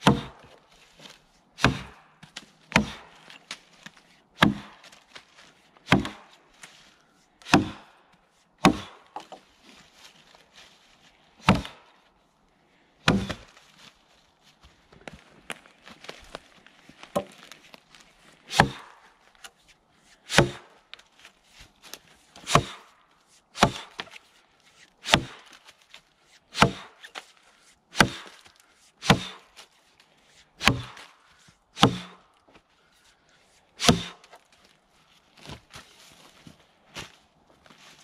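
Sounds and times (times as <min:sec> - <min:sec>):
axe chopping log: 0:00.0 - 0:00.6, 0:01.6 - 0:03.6, 0:04.4 - 0:05.0, 0:05.8 - 0:06.4, 0:07.4 - 0:07.9, 0:08.6 - 0:09.4, 0:11.4 - 0:11.9, 0:13.0 - 0:13.5, 0:17.1 - 0:17.4, 0:18.5 - 0:19.0, 0:20.3 - 0:20.8, 0:22.4 - 0:22.9, 0:23.6 - 0:24.2, 0:25.0 - 0:25.4, 0:26.5 - 0:27.2, 0:27.9 - 0:28.4, 0:29.0 - 0:29.5, 0:30.6 - 0:31.1, 0:31.8 - 0:32.2, 0:33.8 - 0:34.4.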